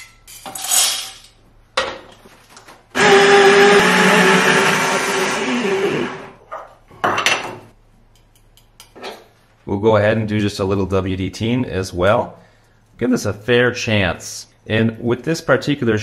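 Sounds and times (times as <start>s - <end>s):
coffee grinder whirring: 3.0s - 6.4s.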